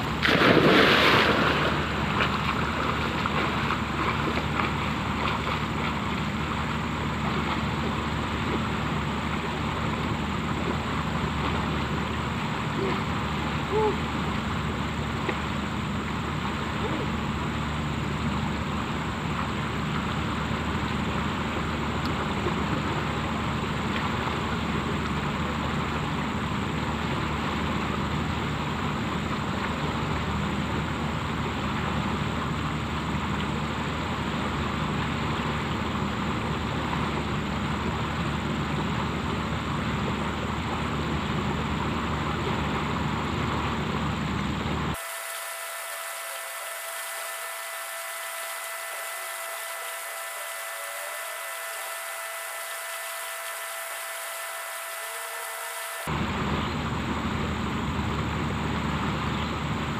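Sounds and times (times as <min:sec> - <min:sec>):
floodwater rushing: 0:00.0 - 0:14.4
low steady hum: 0:00.0 - 0:59.9.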